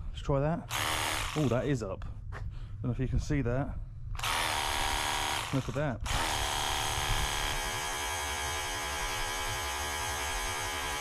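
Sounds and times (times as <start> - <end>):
pressure washer pump motor: 4.2 - 11.0.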